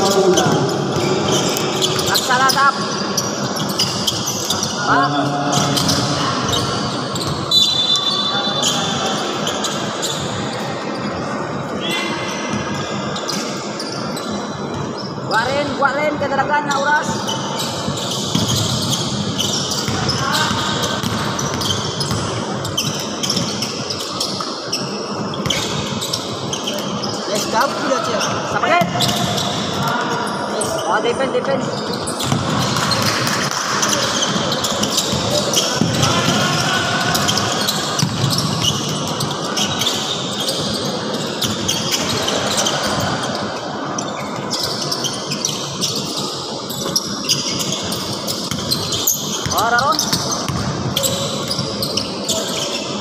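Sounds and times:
sneakers squeaking: 0:00.0 - 0:53.0
basketball bouncing: 0:18.2 - 0:23.6, 0:32.2 - 0:39.8, 0:48.4 - 0:51.7.

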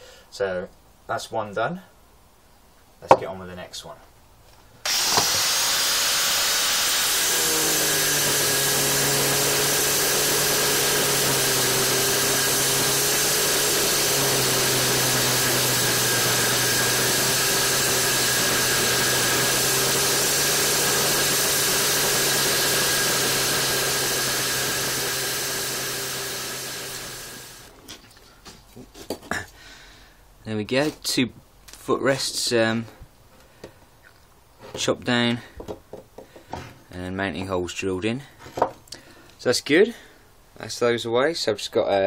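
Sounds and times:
angle grinder cutting steel: 0:04.9 - 0:27.7.

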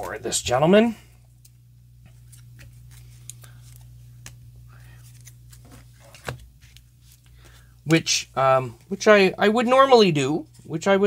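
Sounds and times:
steady low hum: 0:00.0 - 0:11.0
cards and paper rustling: 0:02.0 - 0:08.0.

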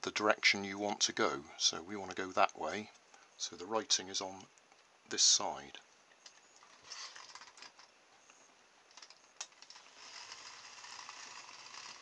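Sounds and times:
small electric motor whirring: 0:06.6 - 0:07.8, 0:09.6 - 0:12.0.

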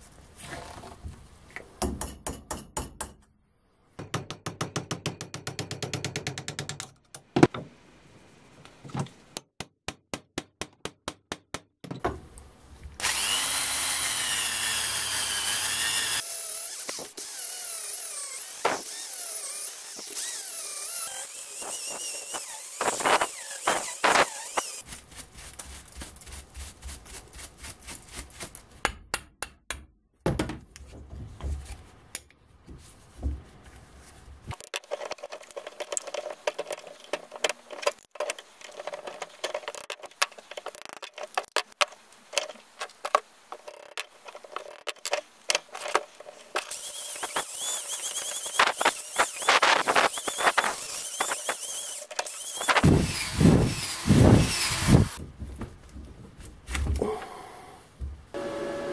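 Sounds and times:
electric drill boring wood: 0:13.0 - 0:24.8, 0:46.7 - 0:55.2, 0:58.4 - 0:58.9
knocks and scraping of wood: 0:21.6 - 0:27.3, 0:30.2 - 0:57.1.

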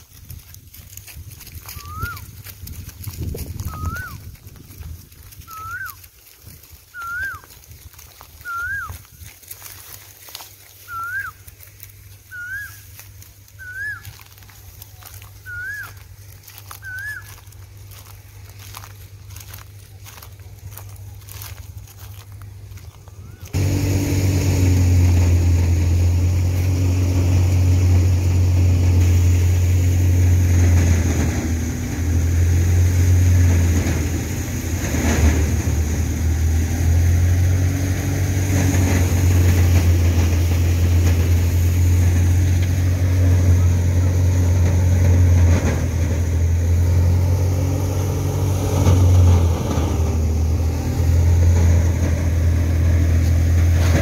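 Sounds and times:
thresher deep drone: 0:22.8 - 0:54.0.

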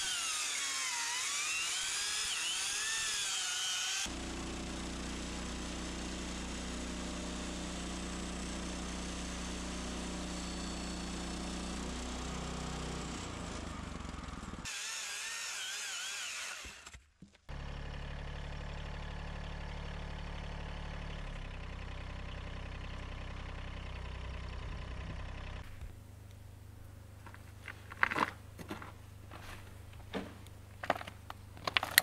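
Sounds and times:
chainsaw running: 0:00.0 - 0:21.9.

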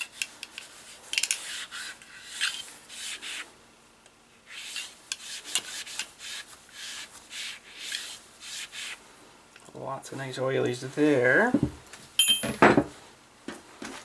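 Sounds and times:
brush rasping in barrel tube: 0:00.0 - 0:03.5, 0:04.5 - 0:09.0.

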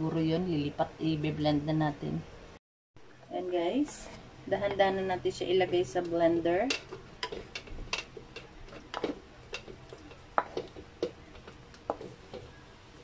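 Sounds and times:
utensil clicking against pan: 0:05.9 - 0:12.6.

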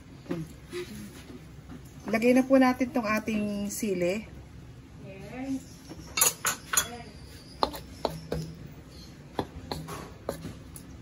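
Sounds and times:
spatula stirring stew in a wok: 0:07.4 - 0:11.0
spatula knocking on metal pan: 0:09.3 - 0:10.6.

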